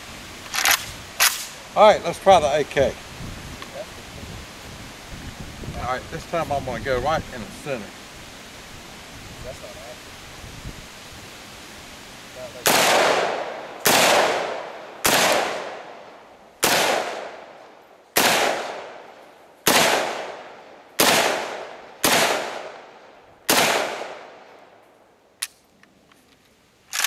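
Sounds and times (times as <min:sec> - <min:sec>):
rifle shots with echo: 0:12.6 - 0:16.0, 0:16.6 - 0:17.6, 0:18.2 - 0:24.5.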